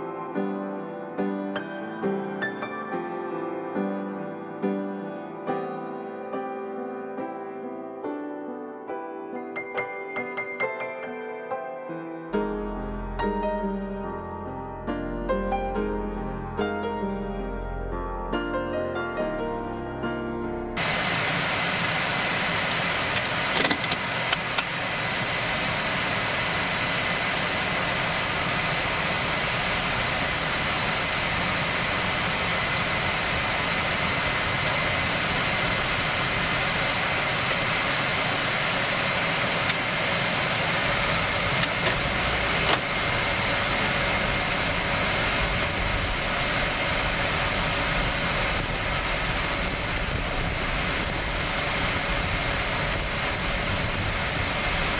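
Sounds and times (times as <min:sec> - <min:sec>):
faint steady whine: 0:20.6 - 0:54.9
road and wind noise: 0:20.8 - 0:54.9
low rumble: 0:40.8 - 0:54.9.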